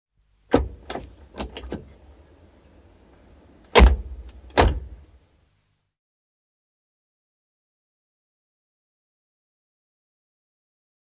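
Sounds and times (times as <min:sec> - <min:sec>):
car door clicks: 0:00.5 - 0:01.9, 0:03.6 - 0:05.0
car door slams: 0:00.5 - 0:01.9, 0:03.7 - 0:05.0.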